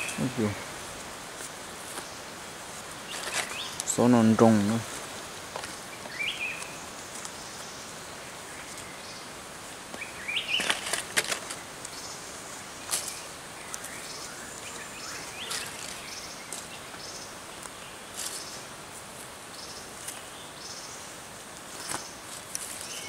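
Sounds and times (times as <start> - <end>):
feathers rustling and flapping: 0.0 - 7.7, 9.8 - 16.8, 21.4 - 23.0
forest ambience hiss: 0.0 - 23.0.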